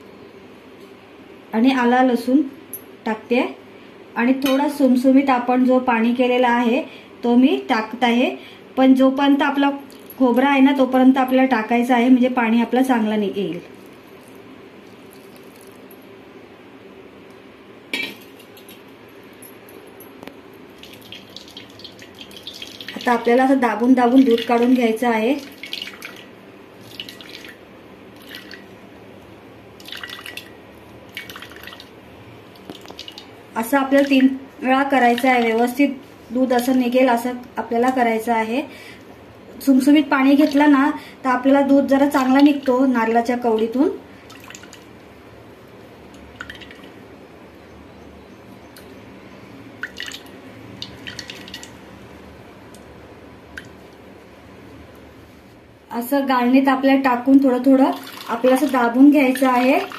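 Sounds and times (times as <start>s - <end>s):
coconut milk dripping and squishing: 13.7s - 16.0s, 20.8s - 23.2s, 29.8s - 33.3s, 49.8s - 51.8s, 57.9s - 59.9s
liquid dripping into steel bowl: 49.8s - 51.8s.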